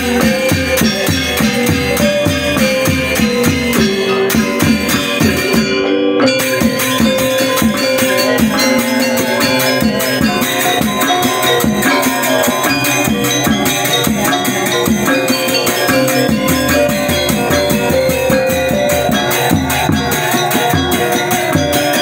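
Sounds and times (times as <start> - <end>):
cymbals clashing: 0.0 - 22.0
drums beaten with a stick: 0.0 - 22.0
metallophones ringing: 0.0 - 22.0.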